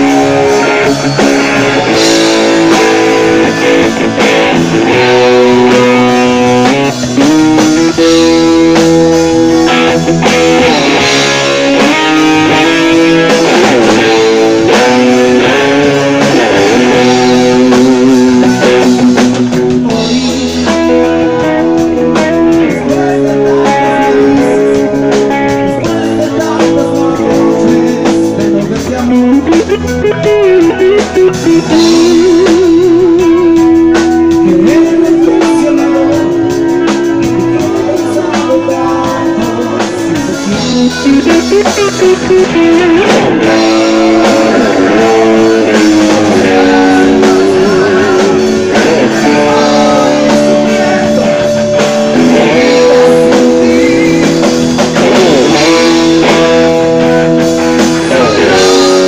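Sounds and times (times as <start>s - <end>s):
electric guitar lead bending notes: 0.0s - 59.0s
live rock band playing: 0.0s - 59.0s.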